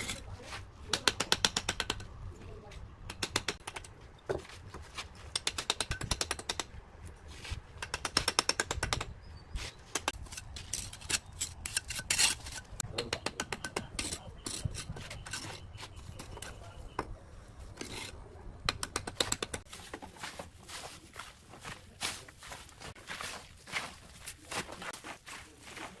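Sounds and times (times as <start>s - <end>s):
trowel scraping and tapping bricks: 0.0s - 2.1s, 3.1s - 6.8s, 7.4s - 20.0s.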